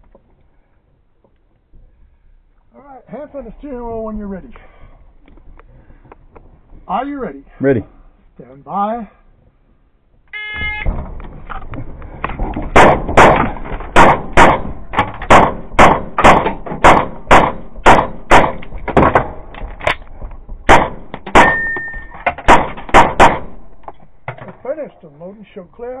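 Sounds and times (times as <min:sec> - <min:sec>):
pistol shots: 0:12.7 - 0:19.5, 0:20.7 - 0:21.8, 0:22.4 - 0:23.8.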